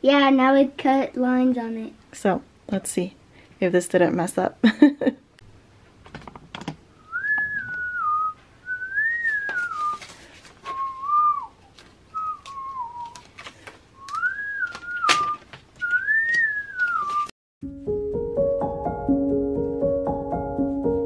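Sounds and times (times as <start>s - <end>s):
person whistling: 7.0s - 13.2s, 14.0s - 17.3s
paper label sheet crackling: 9.2s - 17.3s
stickers peeled off: 11.6s - 17.3s.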